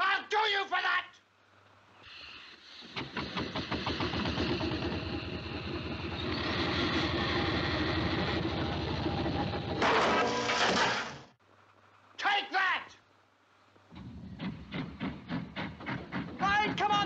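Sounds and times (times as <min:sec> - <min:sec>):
steam roller chuffing: 0:02.5 - 0:09.8, 0:14.3 - 0:17.0.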